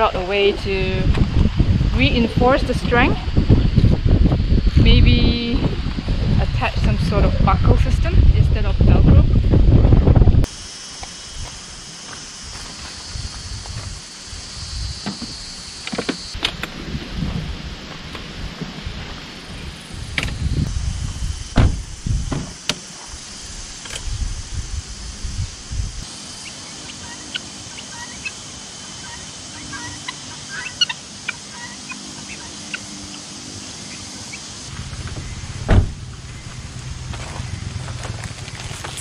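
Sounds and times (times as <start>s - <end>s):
wind buffeting microphone: 0.0s - 10.5s, 13.0s - 15.6s, 16.3s - 26.1s, 34.7s - 39.0s
loud thump: 21.6s - 22.8s, 35.1s - 36.1s
fowl calling: 26.4s - 34.4s.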